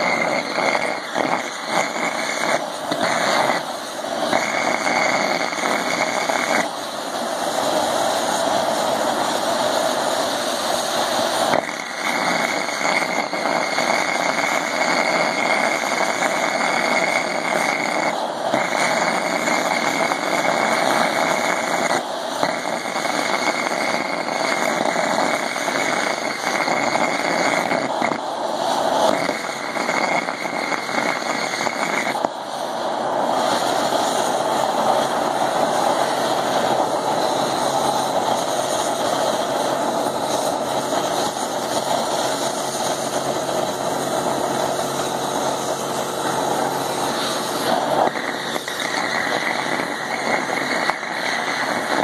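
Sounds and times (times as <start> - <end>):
gas torch flame roaring: 0.0 - 52.0.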